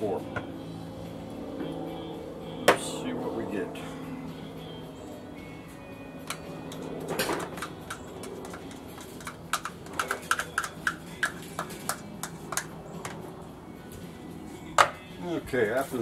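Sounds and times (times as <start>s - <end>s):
utensil tapping on container: 7.6s - 13.2s.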